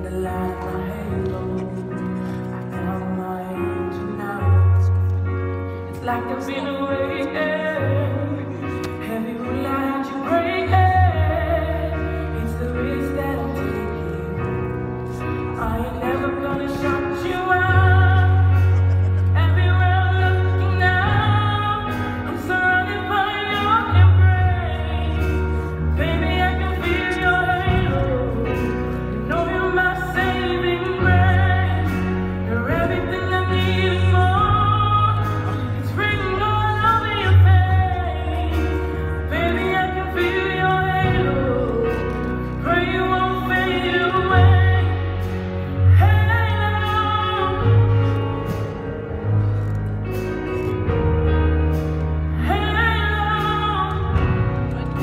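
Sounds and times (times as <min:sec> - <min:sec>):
person singing: 0:00.0 - 0:49.4, 0:50.1 - 0:55.0
instrumental accompaniment: 0:00.0 - 0:55.0.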